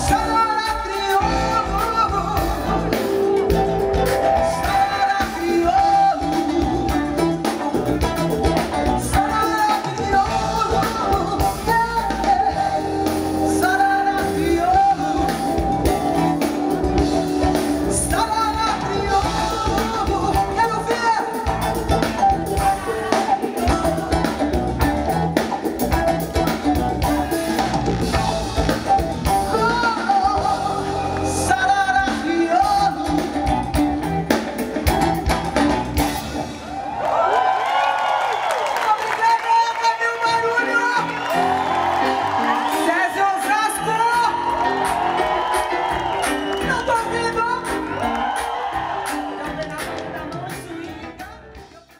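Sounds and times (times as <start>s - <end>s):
woman singing: 0.0s - 27.4s, 29.3s - 34.4s, 42.6s - 45.0s, 46.3s - 48.2s, 49.0s - 51.9s
bass guitar: 0.0s - 37.8s, 40.2s - 51.9s
electric guitar: 0.0s - 38.4s
drum kit: 0.0s - 39.6s, 40.2s - 51.9s
congas: 0.0s - 51.9s.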